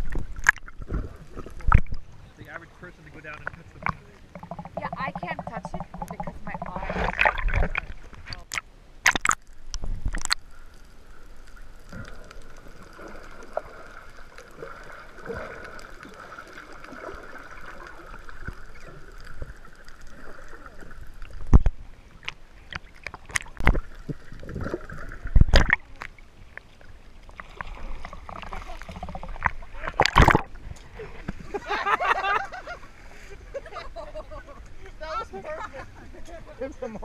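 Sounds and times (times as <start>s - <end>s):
water sloshing and gurgling: 0.0s - 37.0s
sharp knocks or splashes: 3.4s - 9.4s, 24.5s - 25.9s, 27.6s - 30.5s.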